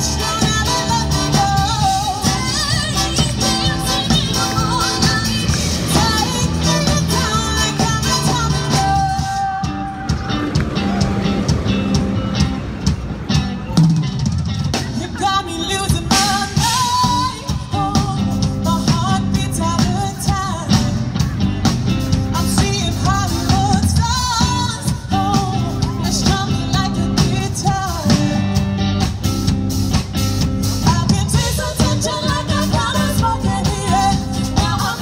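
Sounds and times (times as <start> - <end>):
lead vocal singing: 0.0 - 10.4, 14.8 - 21.1, 30.8 - 35.0
live rock-pop band playing: 0.0 - 35.0
steady drum beat: 0.0 - 35.0.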